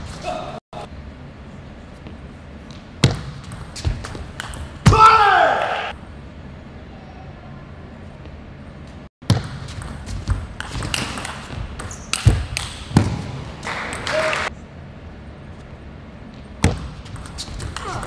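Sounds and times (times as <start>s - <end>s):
voice or cheering: 4.9s - 5.9s, 14.0s - 14.5s.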